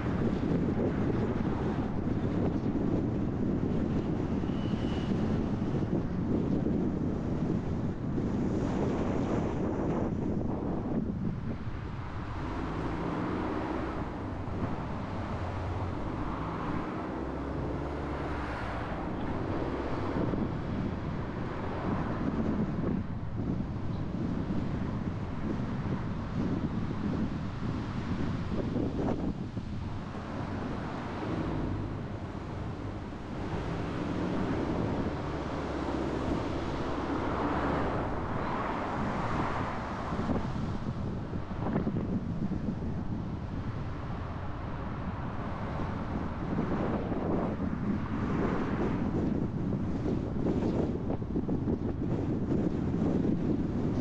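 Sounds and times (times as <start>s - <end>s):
car engine and road noise: 0.0s - 54.0s
wind rushing over microphone: 0.0s - 54.0s.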